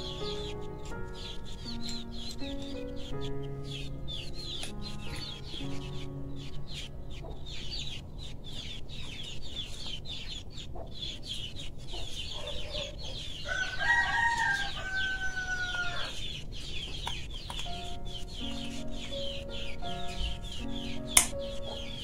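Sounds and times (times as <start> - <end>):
rooster crowing: 13.4 - 16.2.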